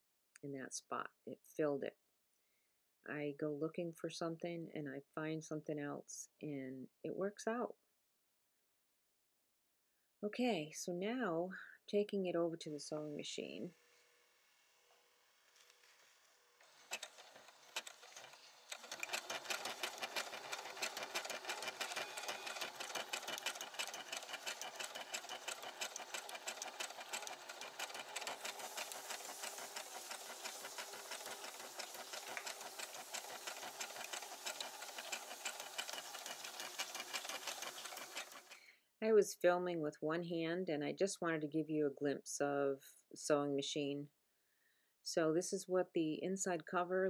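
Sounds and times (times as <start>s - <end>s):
sewing machine stitching: 16.6s - 38.7s.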